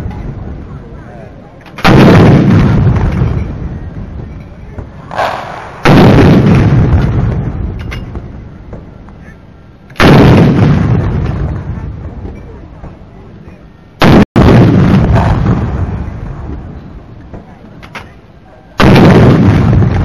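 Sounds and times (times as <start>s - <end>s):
long rolling echo: 0.0s - 20.0s
artillery gun booms: 1.7s - 3.8s, 4.8s - 8.3s, 10.0s - 12.0s, 14.0s - 16.8s, 18.8s - 20.0s.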